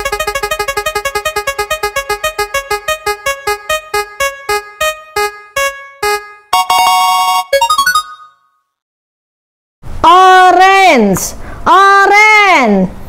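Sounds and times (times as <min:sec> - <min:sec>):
spin wheel ticking: 0:00.0 - 0:03.3.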